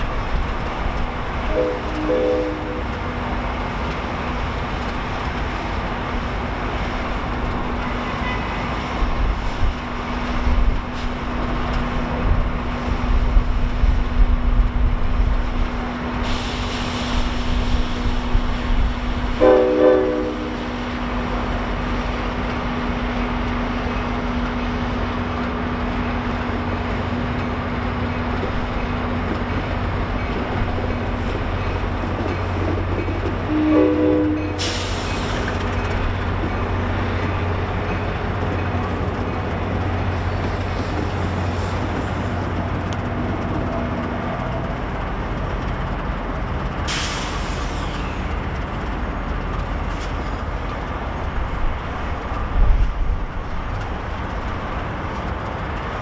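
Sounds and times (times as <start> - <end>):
diesel locomotive engine rumbling: 0.0 - 56.0
train horn blast: 1.4 - 3.0, 7.8 - 8.8, 19.4 - 20.7, 33.4 - 35.0
air hiss: 16.2 - 19.4, 46.9 - 48.2.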